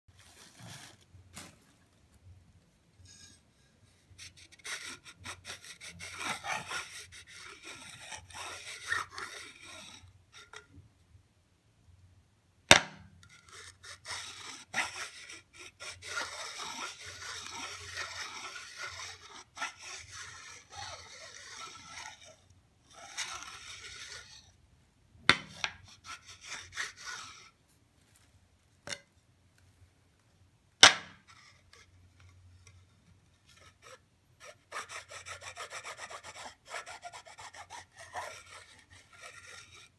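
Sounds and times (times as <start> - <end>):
object scraping on ceramic tile: 4.2 - 10.8, 12.8 - 24.5, 25.3 - 27.5.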